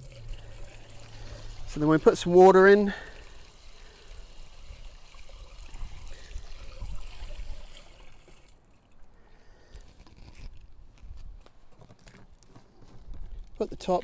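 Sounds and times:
hose water running into container: 0:00.0 - 0:10.6.

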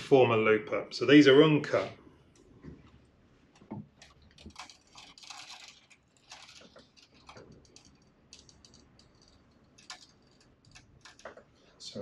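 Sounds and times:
plastic tubes clicking and rustling: 0:03.5 - 0:11.6.

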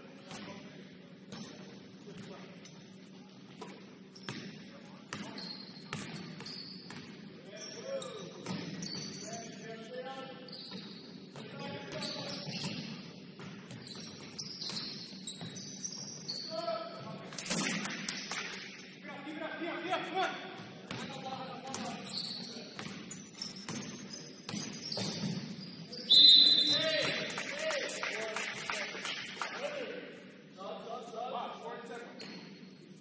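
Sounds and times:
faint gym background noise: 0:00.0 - 0:33.0
basketball bouncing on court floor: 0:03.7 - 0:07.2, 0:22.7 - 0:25.6.

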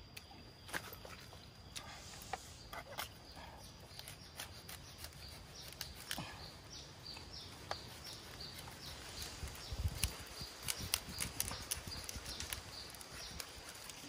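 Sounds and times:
clicks and rustles: 0:09.2 - 0:14.0.

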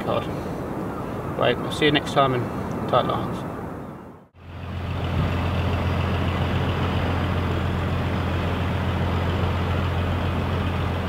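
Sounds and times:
boat diesel engine humming: 0:04.4 - 0:11.0.

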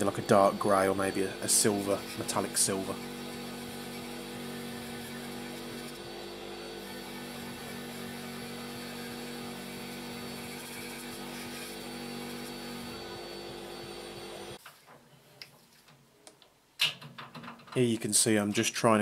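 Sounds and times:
bench grinder grinding metal: 0:00.0 - 0:14.6.

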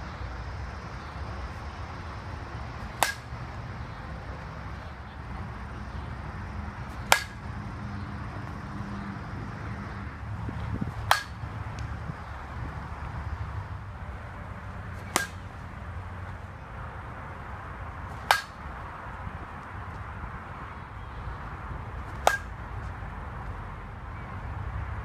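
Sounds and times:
low outdoor rumble: 0:00.0 - 0:25.0
bat hitting ball: 0:02.7 - 0:03.6, 0:06.8 - 0:07.6, 0:10.5 - 0:12.0, 0:14.9 - 0:15.6, 0:18.1 - 0:18.8, 0:22.0 - 0:22.6.

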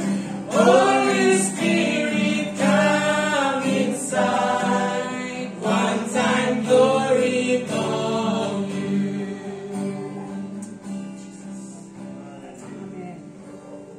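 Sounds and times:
group of voices singing: 0:00.0 - 0:10.6
guitar playing: 0:00.0 - 0:13.9.

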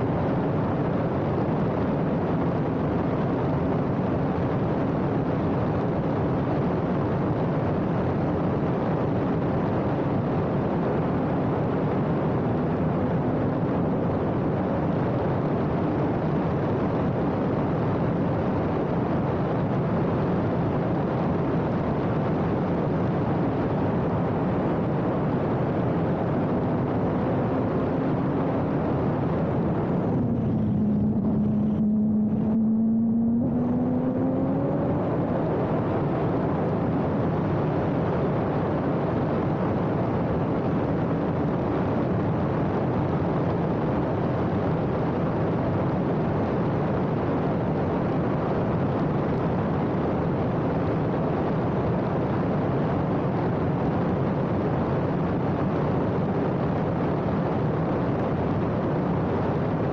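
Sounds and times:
race car engine at speed: 0:00.0 - 0:59.9
wind and road noise: 0:00.0 - 0:59.9.

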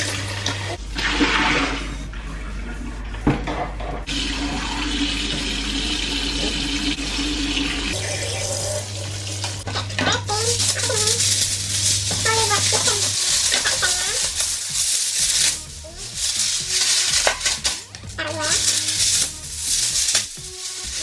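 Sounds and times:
tap water running into sink: 0:00.0 - 0:01.8, 0:04.0 - 0:14.5.

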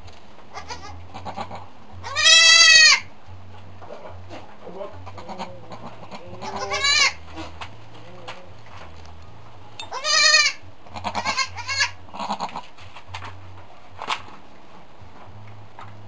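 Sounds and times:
goat bleating: 0:00.5 - 0:03.1, 0:04.9 - 0:08.7, 0:09.9 - 0:12.7.

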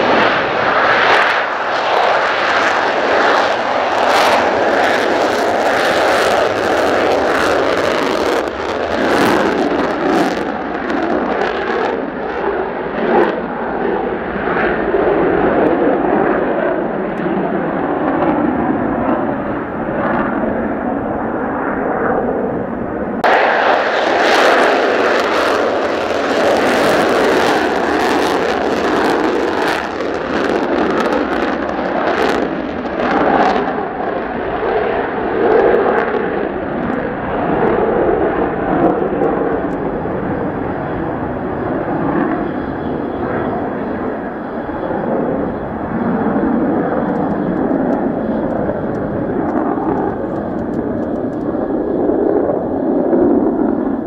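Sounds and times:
crackling jet exhaust: 0:00.0 - 0:54.0
jet engine roar: 0:00.0 - 0:54.0
wind buffeting microphone: 0:00.0 - 0:54.0.

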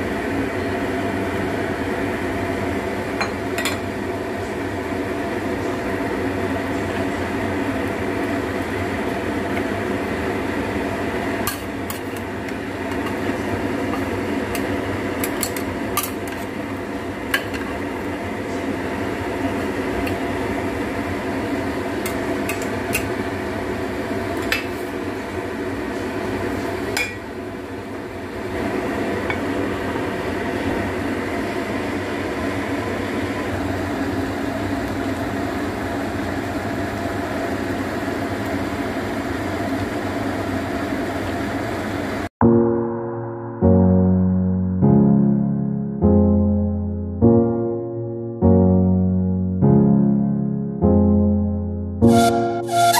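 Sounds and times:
steady hum: 0:42.4 - 0:52.9.

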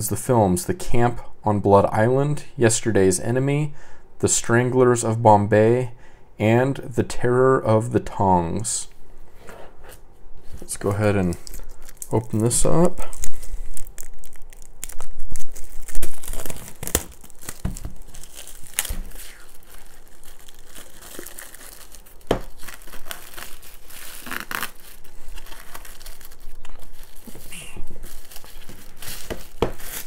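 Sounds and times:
plastic wrap crinkling: 0:10.4 - 0:30.0.

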